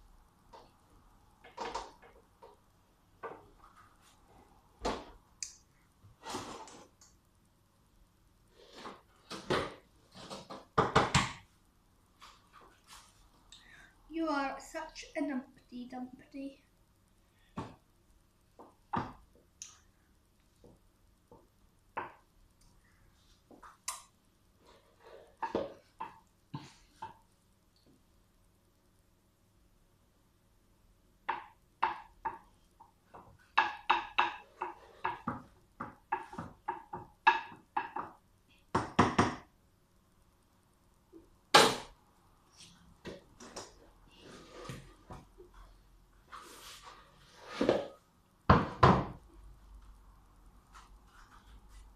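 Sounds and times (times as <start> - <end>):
kitchen items knocking on counter: 10.7 - 11.4, 48.5 - 49.2.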